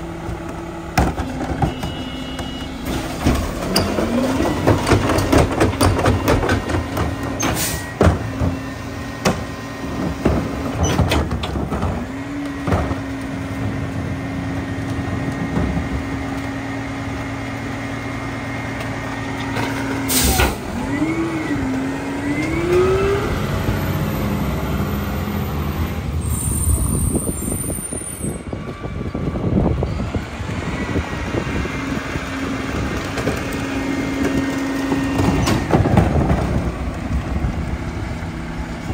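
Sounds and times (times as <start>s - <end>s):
cart clanking and knocking: 0.0s - 13.9s, 14.8s - 16.5s, 32.6s - 37.8s
truck engine at raised revs: 0.0s - 38.9s.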